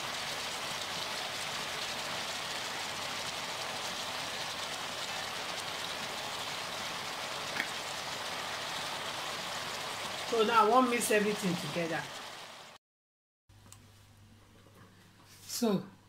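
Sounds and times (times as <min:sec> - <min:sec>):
pot sizzling on stove: 0:00.0 - 0:12.8.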